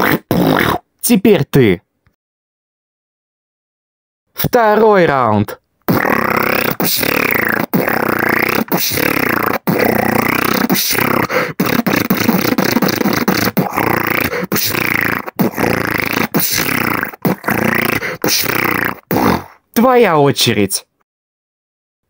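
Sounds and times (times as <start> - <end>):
vocal beatboxing: 0.0 - 0.8, 5.9 - 19.6
swooping vocal glides: 5.9 - 19.6.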